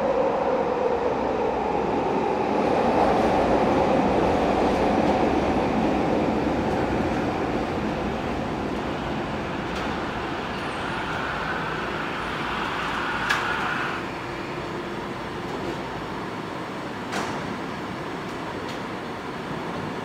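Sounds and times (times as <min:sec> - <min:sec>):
train rumbling by: 0:00.0 - 0:16.9.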